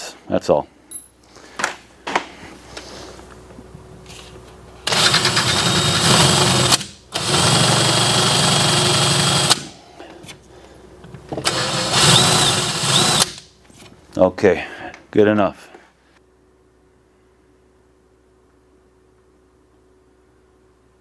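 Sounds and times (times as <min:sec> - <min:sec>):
power drill drilling into wood: 0:04.9 - 0:09.6, 0:11.4 - 0:13.4.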